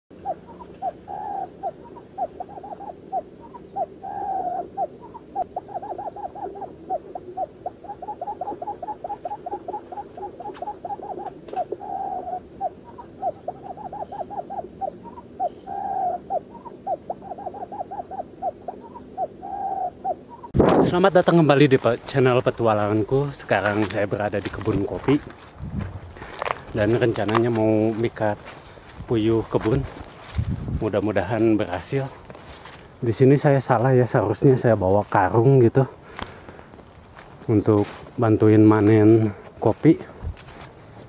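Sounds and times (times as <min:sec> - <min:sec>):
quail calling: 0:00.1 - 0:20.6.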